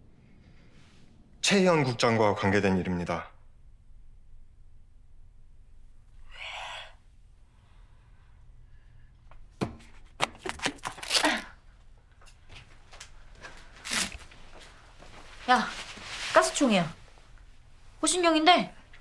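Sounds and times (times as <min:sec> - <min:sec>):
tape ripping off plastic: 0:10.2 - 0:11.5, 0:13.8 - 0:14.3
soft plastic rustle: 0:12.3 - 0:17.5.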